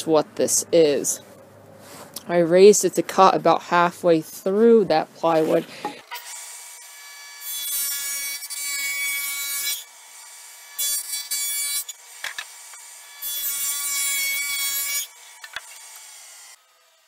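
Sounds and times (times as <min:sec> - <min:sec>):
table saw cutting wood: 0:05.2 - 0:17.0.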